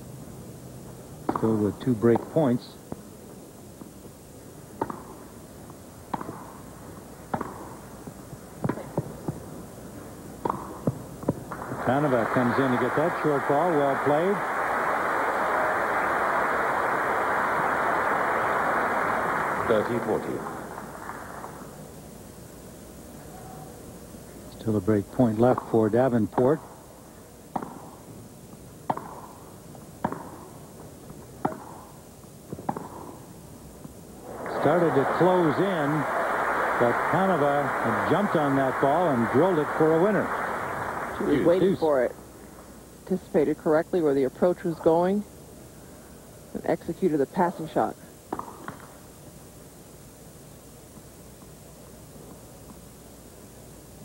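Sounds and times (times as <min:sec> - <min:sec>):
ball bouncing: 0:01.2 - 0:01.5, 0:04.8 - 0:05.2, 0:06.1 - 0:06.6, 0:07.3 - 0:09.5, 0:10.4 - 0:11.8, 0:27.5 - 0:28.0, 0:28.8 - 0:34.0, 0:48.3 - 0:49.0
racquets striking tennis ball: 0:01.2 - 0:03.1, 0:04.7 - 0:09.5, 0:10.3 - 0:14.2, 0:25.4 - 0:26.9, 0:27.5 - 0:35.7, 0:48.3 - 0:49.0.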